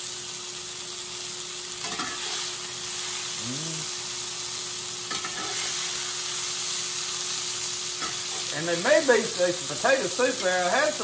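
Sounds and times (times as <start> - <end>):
meat sizzling in a skillet: 0.0 - 11.0
metal utensil scraping a pan: 5.1 - 5.9.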